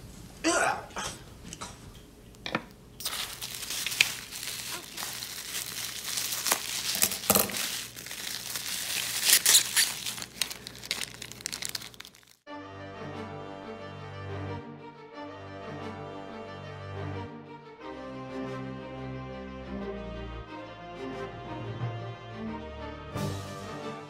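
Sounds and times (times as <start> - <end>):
bubble wrap crinkling and snapping: 3.0 - 12.4
plastic tearing: 3.0 - 12.4
scissors cutting plastic: 3.0 - 12.4.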